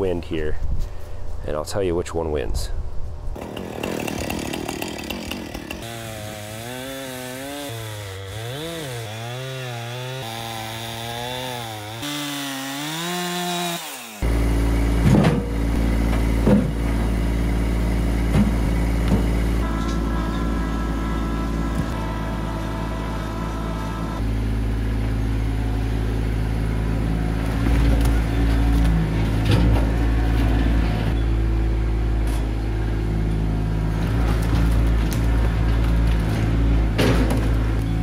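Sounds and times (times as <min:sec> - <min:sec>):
tractor engine running: 0:14.1 - 0:38.0
logs knocking and thudding: 0:15.0 - 0:17.1, 0:18.2 - 0:19.5, 0:34.0 - 0:37.8.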